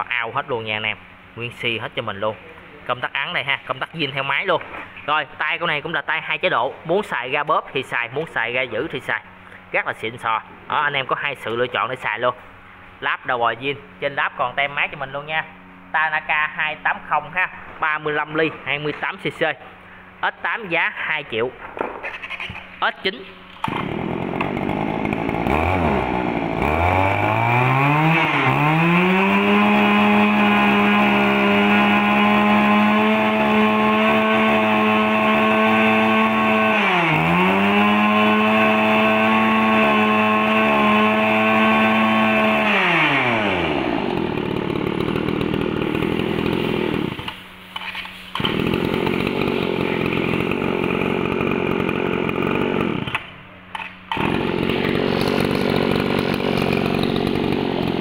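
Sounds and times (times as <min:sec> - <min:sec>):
brush cutter engine revving: 0:22.2 - 0:58.0.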